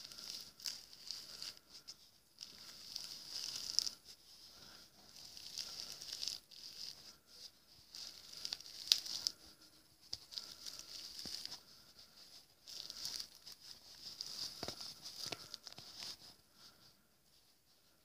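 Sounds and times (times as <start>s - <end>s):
plastic bag crinkling: 0.0s - 4.0s, 5.1s - 7.2s, 7.9s - 9.5s, 10.2s - 11.9s, 12.6s - 16.2s.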